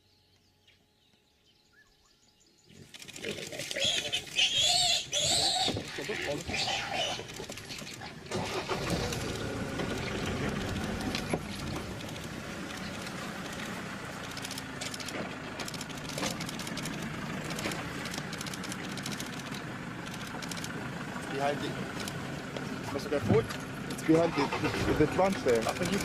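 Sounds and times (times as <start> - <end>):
engine running at low revs: 7.1 - 26.0.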